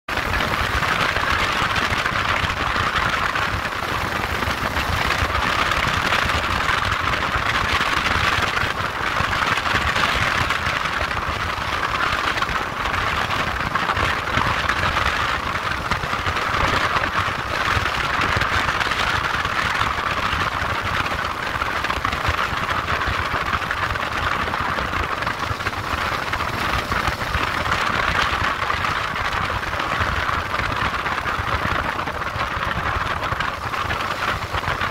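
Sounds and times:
wind and road noise: 0.0 - 34.9
motorcycle engine running: 0.1 - 34.9.

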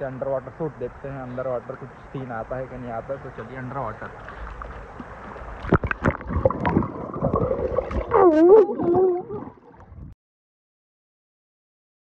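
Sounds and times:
water sloshing around microphone: 0.9 - 10.2
muffled wavering voice-like tone: 8.1 - 9.6.

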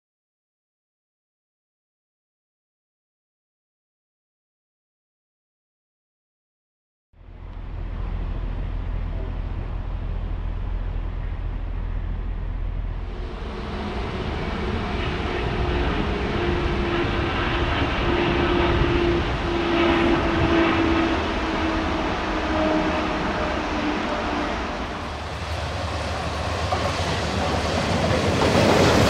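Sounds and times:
low rumble: 7.2 - 28.6
jet airliner flying past: 12.8 - 29.0.

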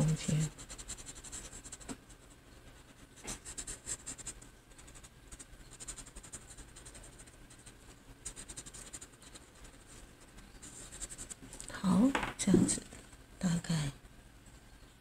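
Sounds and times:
blending stump scratching on paper: 0.0 - 11.7.

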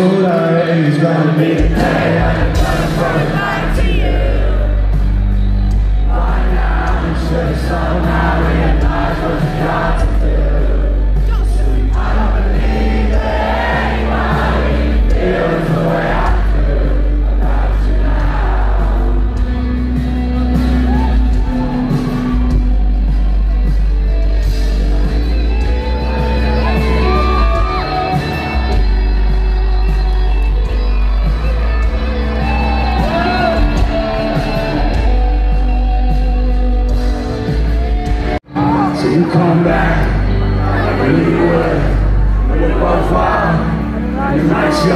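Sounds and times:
person singing: 0.0 - 5.1, 6.0 - 23.7, 38.5 - 44.9
live rock band: 0.0 - 44.9
deep bass notes: 1.5 - 44.9.

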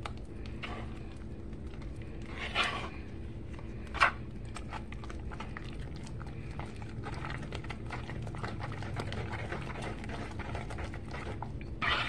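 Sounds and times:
steady low hum: 0.0 - 12.0
spoon scraping plastic bowl: 2.2 - 3.0, 8.5 - 12.0.

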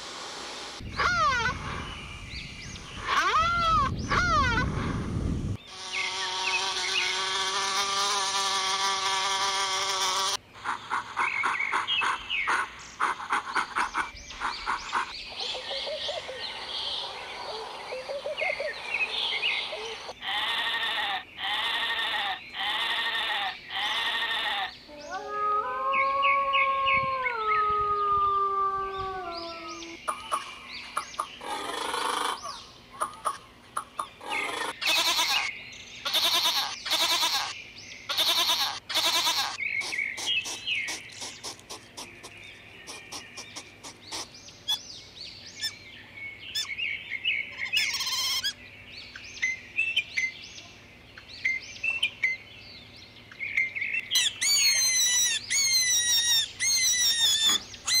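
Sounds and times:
chirping calls: 0.8 - 58.0
wolf howling: 25.0 - 30.0.

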